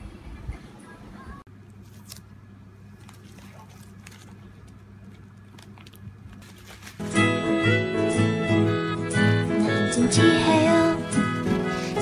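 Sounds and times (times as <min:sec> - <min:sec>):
bubble wrap crinkling: 0:01.8 - 0:07.3, 0:11.0 - 0:12.0.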